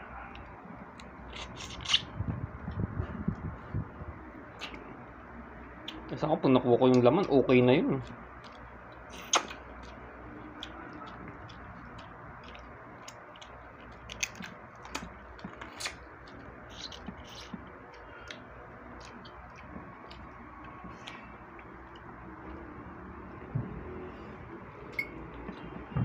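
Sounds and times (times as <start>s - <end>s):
low room hum: 0.0s - 26.0s
chewing: 0.2s - 2.1s, 6.9s - 24.1s
crab shell cracking: 11.5s - 16.0s.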